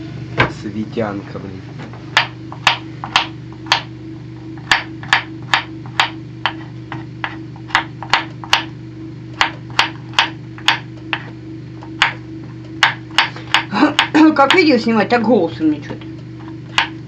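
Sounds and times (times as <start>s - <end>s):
steady low hum: 0.0s - 17.0s
knife chopping on wooden board: 2.1s - 3.9s, 4.5s - 8.7s, 9.3s - 14.7s, 16.4s - 17.0s.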